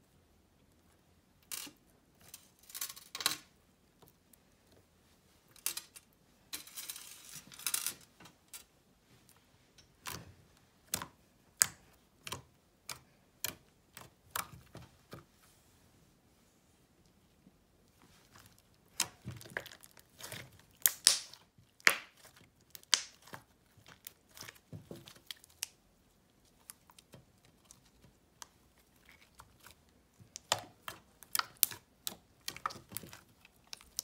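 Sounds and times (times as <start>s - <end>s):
slime crackles and clicks: 18.4s - 25.8s, 26.6s - 34.0s
slime popping: 18.9s - 25.7s, 29.0s - 34.0s.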